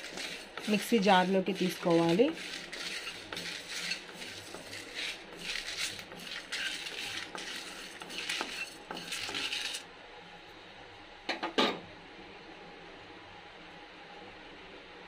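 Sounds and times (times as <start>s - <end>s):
spatula stirring dry spices: 0.0s - 9.9s.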